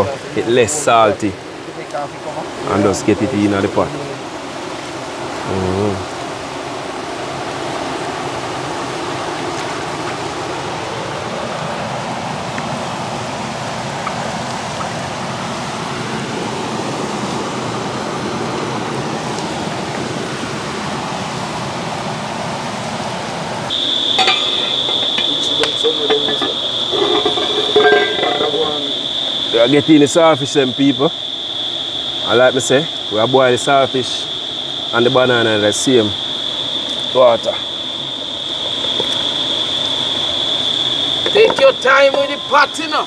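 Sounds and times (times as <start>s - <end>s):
high insect drone: 0.0s - 43.0s
rushing water: 0.0s - 43.0s
scattered clicks and knocks: 24.0s - 29.0s.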